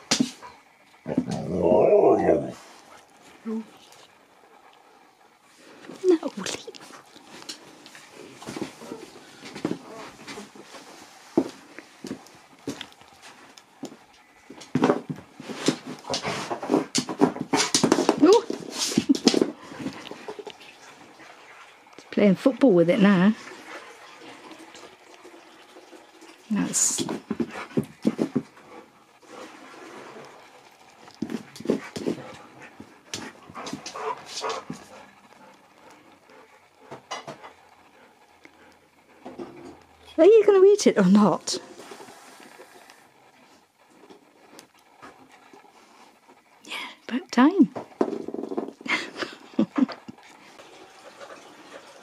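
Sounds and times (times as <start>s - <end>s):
dog panting and snuffling: 14.7s - 21.4s, 26.9s - 39.7s
dog noises: 30.7s - 38.8s.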